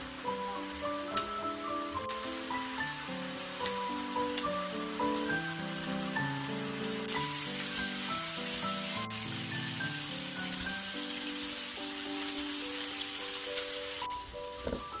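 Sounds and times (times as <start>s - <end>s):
background music melody: 0.0s - 15.0s
meat sizzling in a pan: 0.0s - 15.0s.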